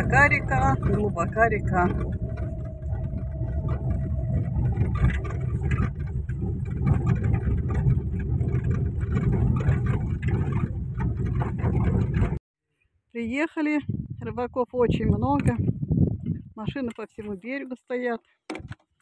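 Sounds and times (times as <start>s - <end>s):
car engine and tyres rumbling: 0.0s - 12.4s
knocks and rattles from bumps: 0.0s - 12.4s.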